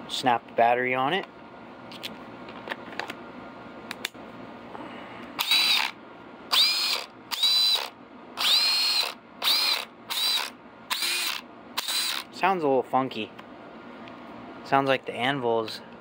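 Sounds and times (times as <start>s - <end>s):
cordless impact wrench whining: 5.4s - 12.3s.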